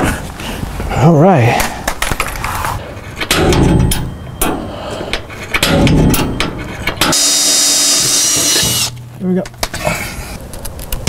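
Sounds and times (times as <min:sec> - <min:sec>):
metal shield knocking and clanking: 0:03.2 - 0:04.7, 0:05.5 - 0:07.1.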